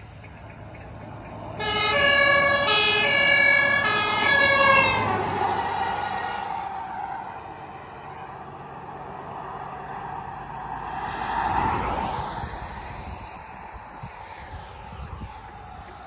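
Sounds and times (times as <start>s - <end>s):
fire truck driving away: 0.0s - 12.8s
car passing with tyre noise: 0.0s - 16.0s.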